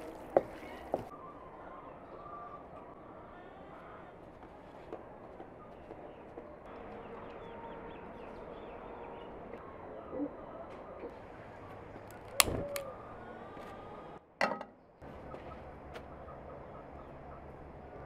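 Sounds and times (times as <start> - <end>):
birds chirping: 5.5 - 13.6.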